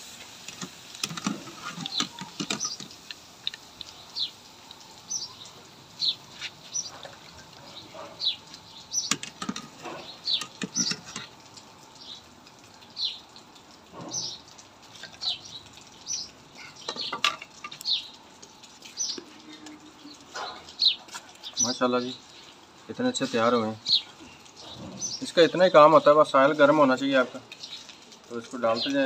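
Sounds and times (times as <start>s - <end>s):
small birds chirping: 0.5s - 29.0s
wire skimmer clinking on wok: 9.0s - 11.4s.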